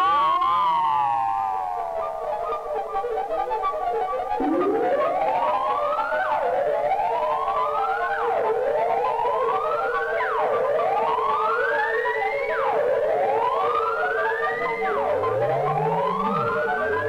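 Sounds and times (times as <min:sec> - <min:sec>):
short electronic bleeps: 0:04.4 - 0:05.4
steady low synth tone: 0:04.4 - 0:05.8, 0:15.0 - 0:17.0
gliding synth pitch: 0:04.4 - 0:06.1, 0:14.6 - 0:17.0.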